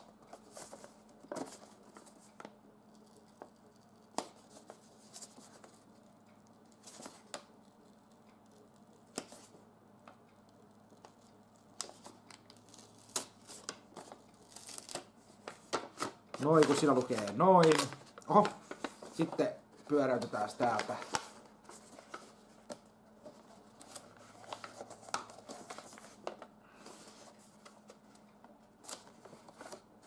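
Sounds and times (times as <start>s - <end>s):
paper rustling: 0.0s - 2.5s, 11.1s - 28.2s, 28.8s - 29.9s.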